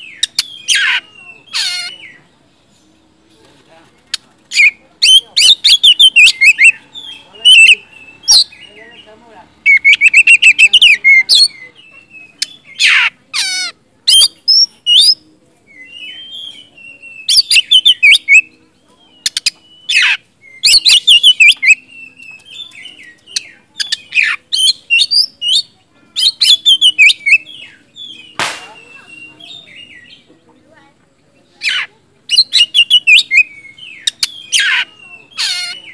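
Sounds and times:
bird singing whistled phrases: 4.6 - 8.7, 9.7 - 12.9, 14.1 - 18.5, 19.1 - 30.3, 32.3 - 35.9
harsh scratchy bird notes: 25.0 - 29.5.

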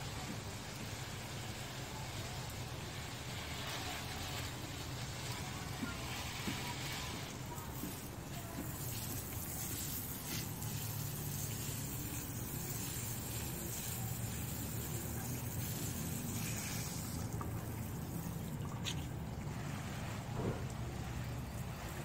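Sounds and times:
water splashing on paving: 0.0 - 22.0
water spraying from hose: 0.0 - 22.0.

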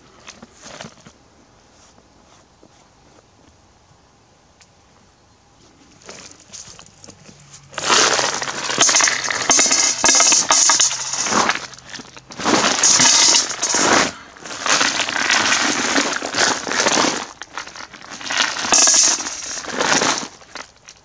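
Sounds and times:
coins clattering into metal bucket: 7.8 - 16.6, 18.3 - 20.3.

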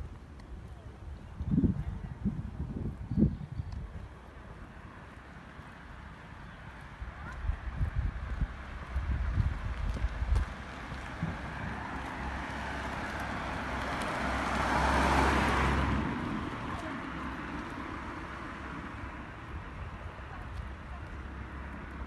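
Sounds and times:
car passing by: 9.0 - 22.0.

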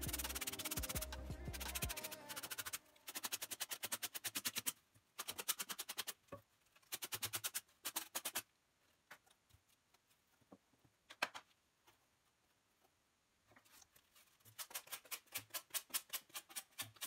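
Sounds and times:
sandpaper scrubbing on styrofoam: 0.0 - 6.2.

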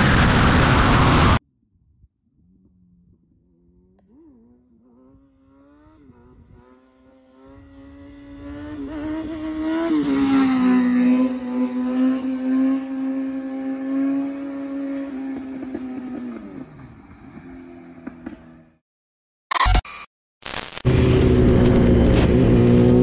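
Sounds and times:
motorcycle engine passing by: 2.4 - 18.8.

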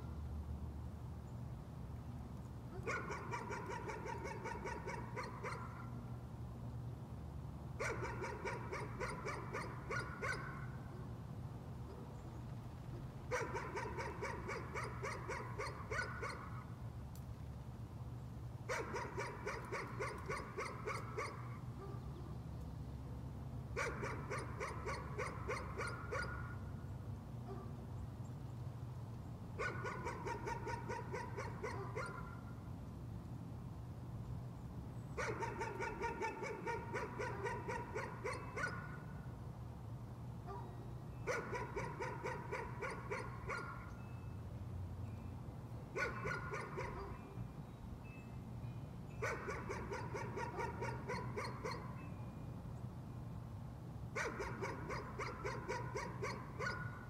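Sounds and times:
dog barking: 2.8 - 5.9, 7.8 - 10.7, 13.3 - 16.6, 18.7 - 22.1, 23.8 - 26.6, 29.6 - 32.4, 35.2 - 39.0, 40.5 - 43.9, 46.0 - 47.2, 49.2 - 51.9, 54.2 - 57.0.

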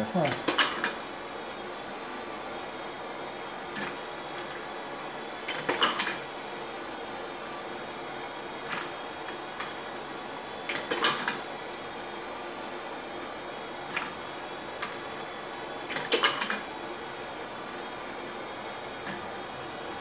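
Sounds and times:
steady flame hiss: 0.0 - 16.0, 16.6 - 20.0.

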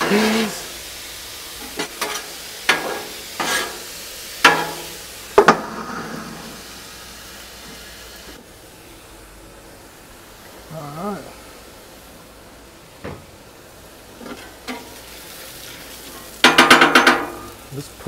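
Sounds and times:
food sizzling: 0.0 - 18.0
metal spatulas scraping a griddle: 1.7 - 4.9.

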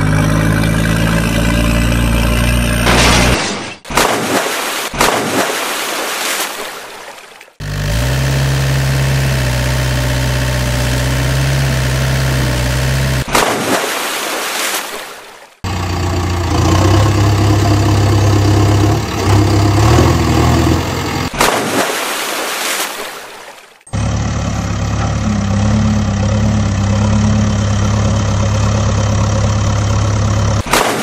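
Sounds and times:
engine idling: 15.7 - 21.3, 23.9 - 30.7.

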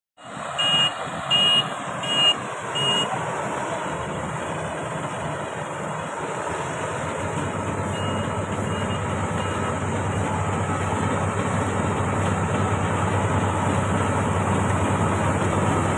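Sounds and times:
combine harvester running: 0.2 - 15.9
short high beeps: 0.6 - 3.1, 7.9 - 10.2.

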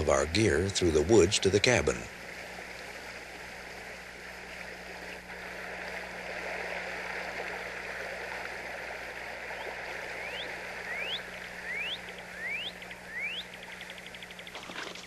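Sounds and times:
stream water flowing: 0.0 - 15.0
rising bird calls: 9.4 - 15.0.

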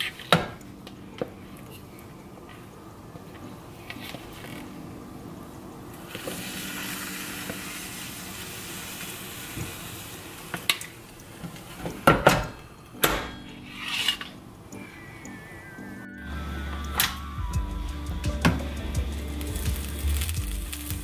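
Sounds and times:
batter sizzling on hot plates: 0.0 - 15.0, 17.9 - 21.0.

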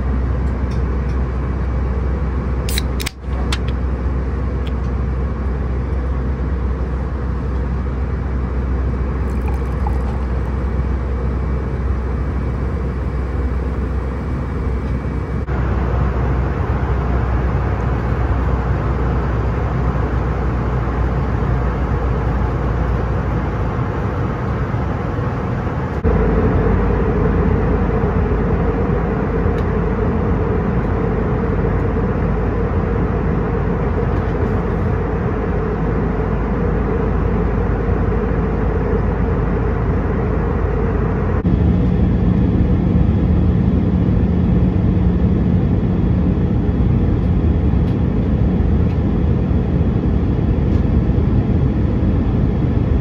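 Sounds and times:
airplane cabin engine roar: 0.0 - 53.0
steady low hum: 0.0 - 53.0.

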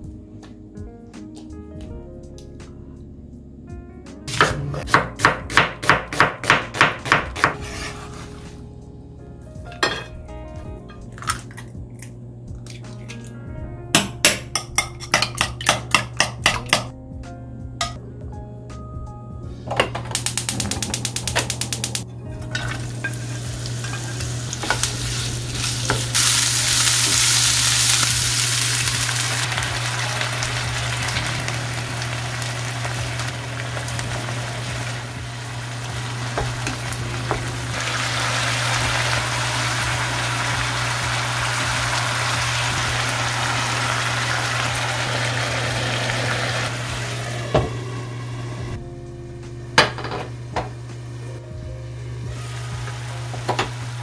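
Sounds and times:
food sizzling in hot oil: 20.2 - 48.7.

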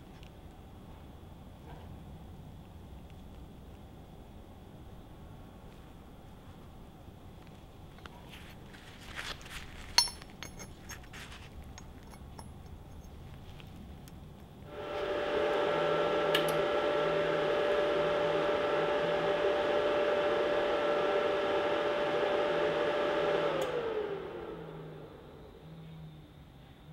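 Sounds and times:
cooling fan whine and air rush: 13.6 - 26.4.

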